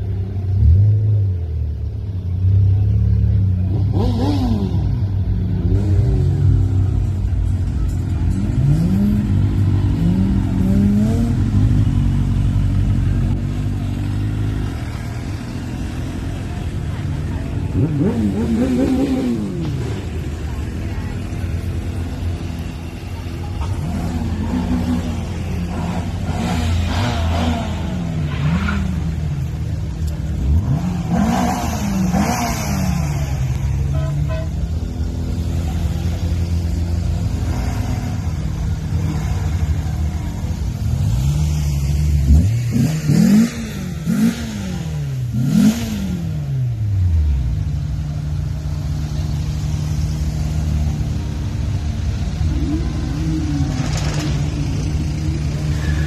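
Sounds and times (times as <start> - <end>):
car engines driving slowly past: 0.0 - 56.0
engines revving: 0.0 - 56.0.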